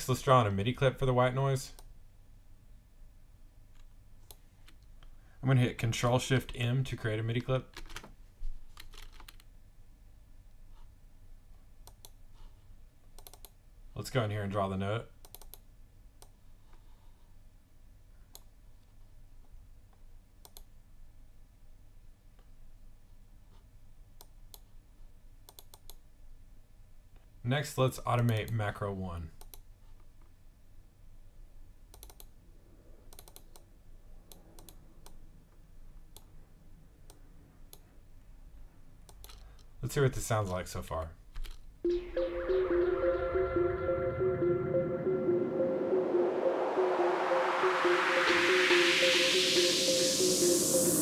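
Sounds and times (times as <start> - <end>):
computer mouse and key clicks: 8.8 - 9.5, 11.8 - 12.2, 13.1 - 13.6, 15.2 - 16.4, 20.4 - 20.7, 25.5 - 26.0, 29.4 - 30.1, 31.9 - 32.4, 33.1 - 33.7, 34.3 - 35.2, 39.1 - 39.7.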